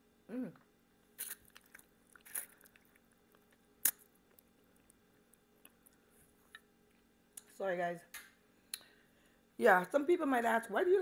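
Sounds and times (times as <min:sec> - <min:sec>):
person humming: 0:00.3 - 0:00.6
sucking slurping noises: 0:01.2 - 0:03.1.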